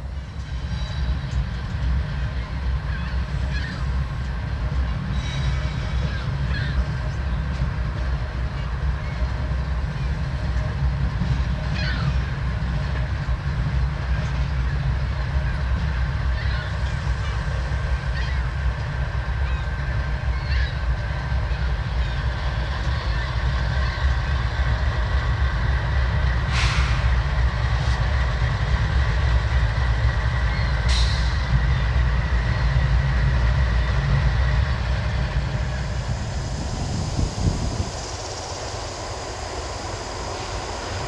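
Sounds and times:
train wheels rumbling on rails: 0.0s - 41.0s
high wheel squeal: 5.1s - 6.9s.

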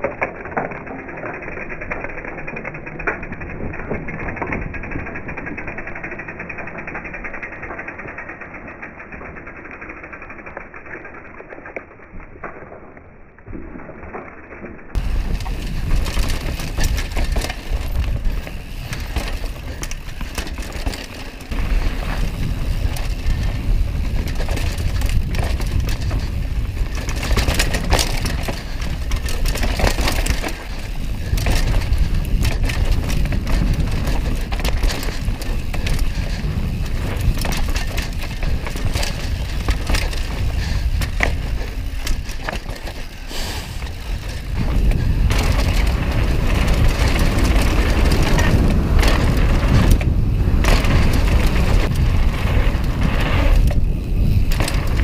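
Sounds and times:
bike rattling over bumps: 0.0s - 55.0s
tyres on dirt: 14.9s - 55.0s
wind rumble on microphone: 14.9s - 55.0s.

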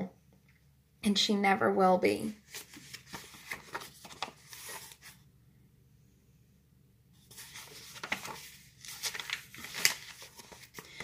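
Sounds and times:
book pages turning: 2.4s - 5.2s, 7.2s - 11.0s.

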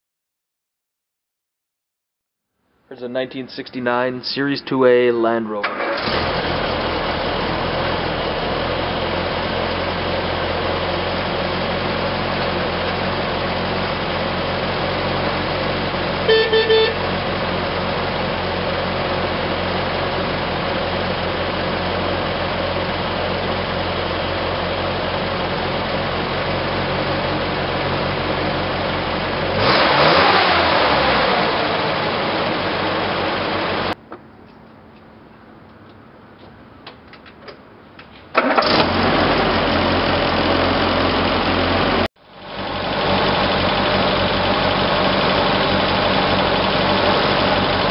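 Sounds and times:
car engine idling and revving: 5.8s - 34.0s, 38.4s - 47.9s
car horn toot: 16.2s - 17.2s.

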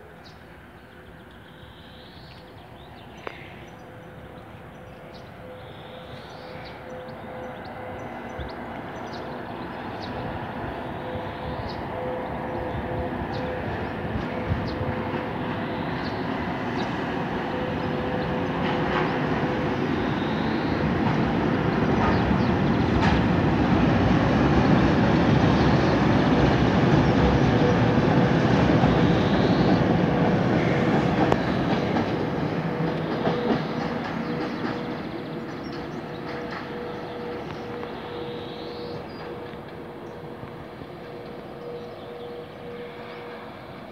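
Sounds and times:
train wheels clattering on rails: 13.2s - 43.4s.

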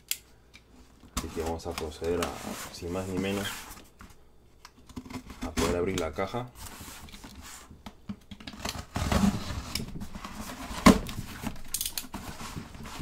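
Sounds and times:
cardboard flaps scraping: 1.2s - 3.9s, 8.5s - 13.0s.

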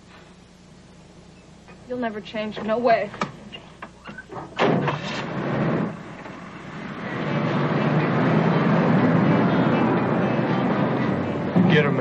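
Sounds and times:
car engine running: 4.6s - 12.0s.

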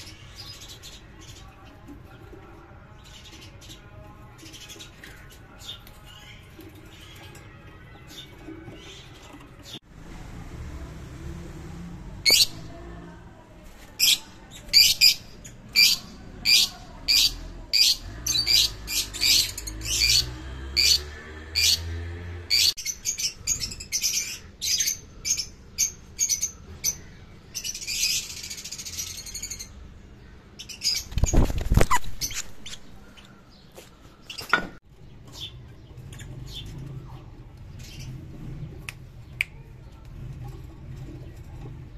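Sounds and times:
birds chirping shrilly: 14.0s - 29.7s.

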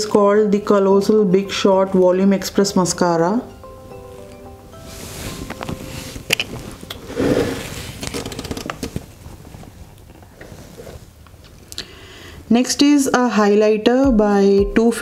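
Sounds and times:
rustling: 4.0s - 11.6s
cosmetic items clicking and tapping: 8.0s - 9.0s.

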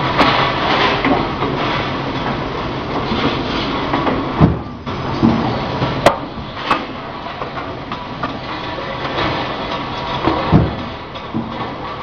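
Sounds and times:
production line mechanical clatter: 0.0s - 12.0s.

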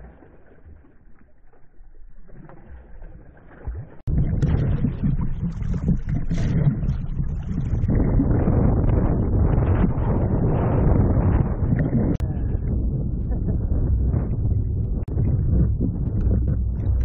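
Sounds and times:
water splashing along a boat: 0.0s - 17.0s
wind buffeting microphone: 4.1s - 17.0s.

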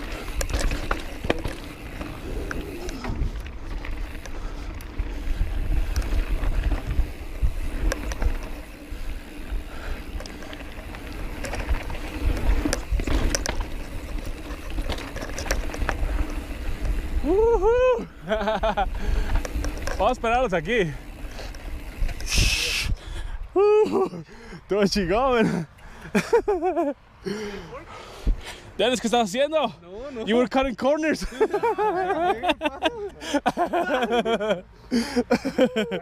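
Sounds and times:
wind on camera: 0.0s - 17.8s, 21.3s - 23.6s
bike rattling over stones: 0.0s - 22.5s
bike tyres rumbling on dirt: 0.0s - 22.6s.

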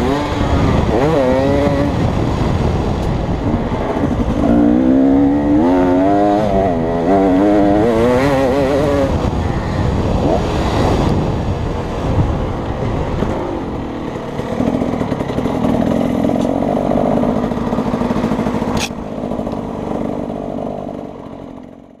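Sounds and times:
dirt bike engine running: 0.0s - 22.0s
sharp click: 18.7s - 19.6s.

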